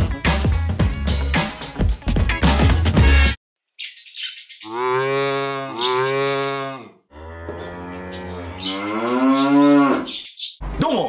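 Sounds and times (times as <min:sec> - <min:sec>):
cow mooing: 0:04.7 - 0:10.1.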